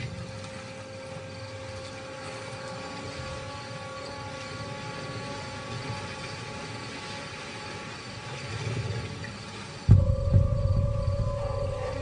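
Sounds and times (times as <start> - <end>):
faint held tones: 9.9 - 12.0
steady drone: 9.9 - 12.0.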